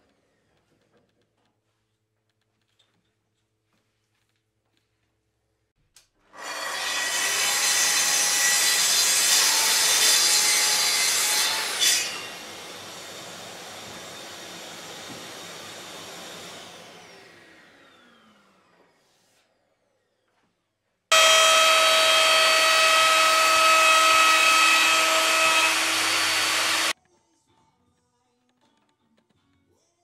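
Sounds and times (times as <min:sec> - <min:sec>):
track saw cutting wood: 0:06.4 - 0:18.9, 0:21.1 - 0:27.0.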